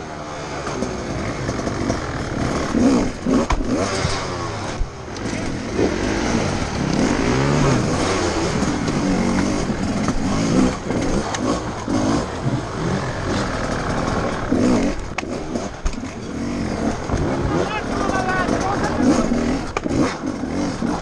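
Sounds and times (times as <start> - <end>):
motorcycle engine revving: 0.0 - 21.0.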